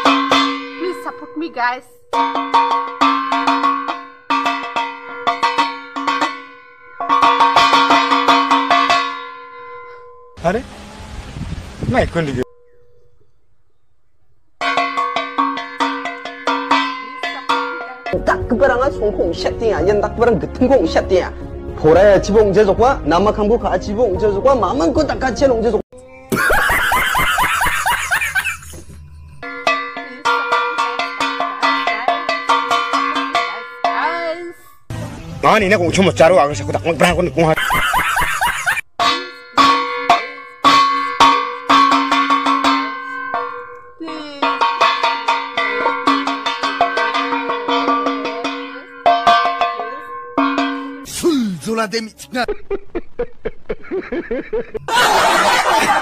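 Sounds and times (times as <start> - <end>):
metal basin struck like a gong: 2.2 - 9.9, 14.6 - 18.3, 29.4 - 34.1, 39.0 - 51.1
man laughing loudly: 26.3 - 29.0, 37.6 - 38.8, 52.4 - 56.0.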